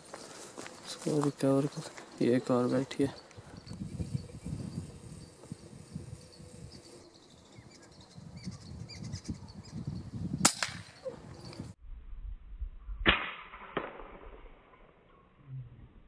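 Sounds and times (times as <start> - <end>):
air rifle shots: 10.4 - 10.9.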